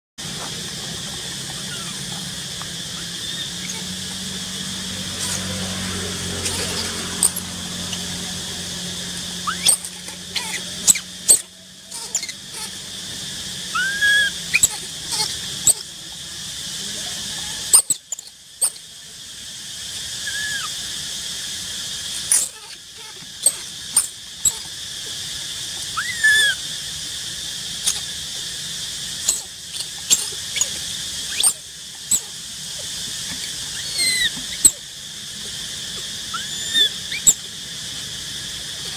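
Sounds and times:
high-pitched hiss: 0:00.2 - 0:38.9
baby monkey squeaking: 0:01.5 - 0:02.1, 0:03.0 - 0:04.2, 0:06.3 - 0:08.2, 0:09.4 - 0:12.9, 0:13.7 - 0:15.9, 0:17.6 - 0:18.8, 0:20.2 - 0:20.7, 0:22.1 - 0:24.7, 0:25.8 - 0:26.6, 0:27.8 - 0:28.1, 0:29.2 - 0:34.8, 0:36.3 - 0:37.5.

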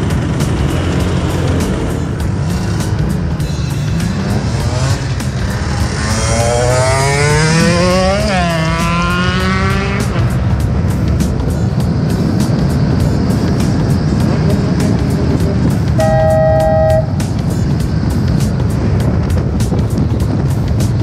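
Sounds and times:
scooter engine: 0:00.0 - 0:21.0
whining tone: 0:14.5 - 0:17.2.

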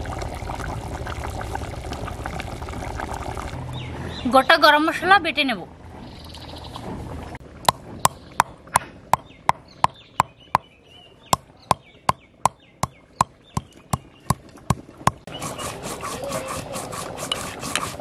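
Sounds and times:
stone roller knocking on stone slab: 0:12.5 - 0:15.2.

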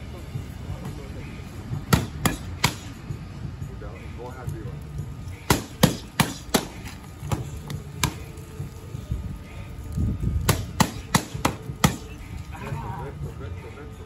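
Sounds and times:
boxing gloves smacking mitts: 0:01.9 - 0:03.0, 0:05.4 - 0:08.4, 0:10.4 - 0:12.2.

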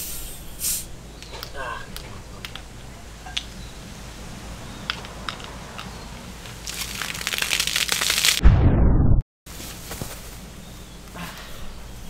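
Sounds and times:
soda fizzing and foaming: 0:06.6 - 0:08.4.

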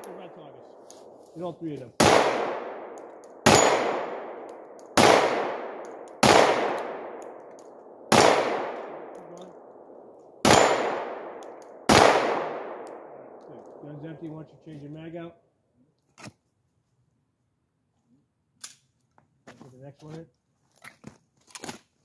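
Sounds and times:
pistol shots with echo: 0:02.0 - 0:14.2.

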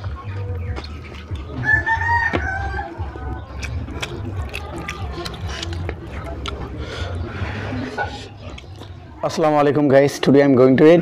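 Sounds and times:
rooster crowing: 0:01.6 - 0:03.2.

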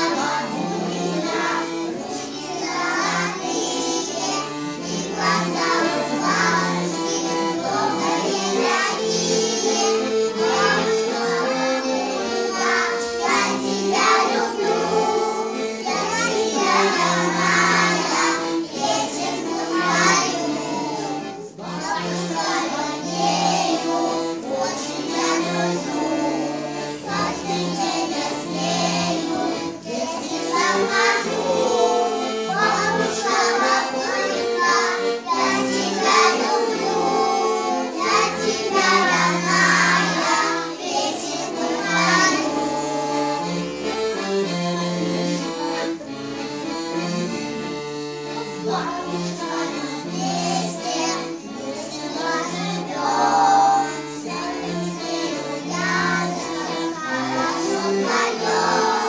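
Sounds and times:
children singing: 0:00.0 - 0:59.0
musical accompaniment: 0:00.0 - 0:59.0.

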